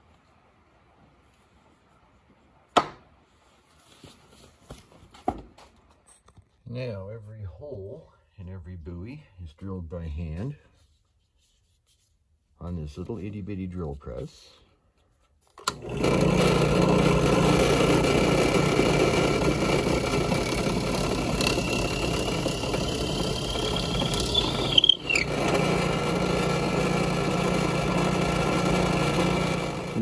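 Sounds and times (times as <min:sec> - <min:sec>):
drill press drilling wood: 0:15.6 - 0:30.0
thin rising whine: 0:21.3 - 0:26.0.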